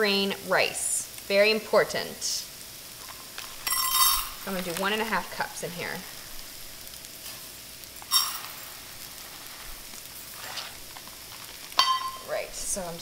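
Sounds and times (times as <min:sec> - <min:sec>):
leeks sizzling in a frying pan: 0:00.0 - 0:13.0
rice being poured: 0:02.7 - 0:13.0
sharp metallic clink: 0:03.7 - 0:04.3, 0:11.8 - 0:12.3.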